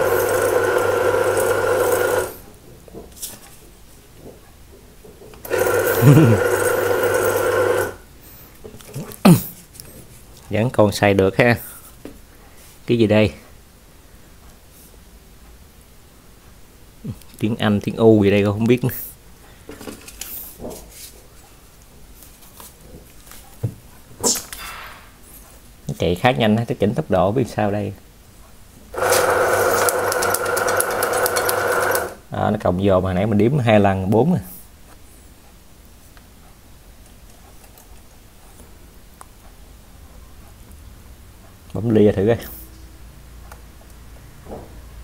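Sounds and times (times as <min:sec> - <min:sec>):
banknote counter motor whirring: 0:00.0 - 0:02.4, 0:05.4 - 0:08.0, 0:29.0 - 0:32.2
banknote counter click: 0:29.0 - 0:32.2.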